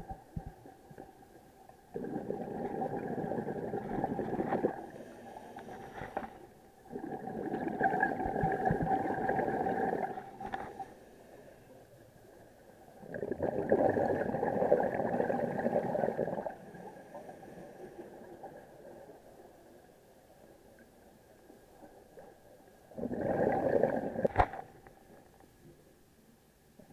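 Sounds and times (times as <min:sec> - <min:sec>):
exhaled bubbles underwater: 0:01.8 - 0:05.0, 0:06.8 - 0:10.5, 0:12.9 - 0:17.3, 0:22.8 - 0:24.4.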